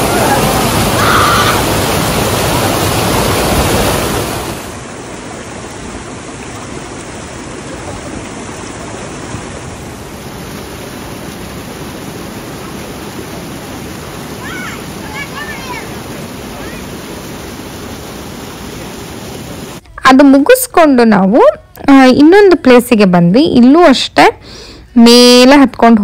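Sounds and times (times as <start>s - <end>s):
water rushing over waterfall: 0.0s - 19.8s.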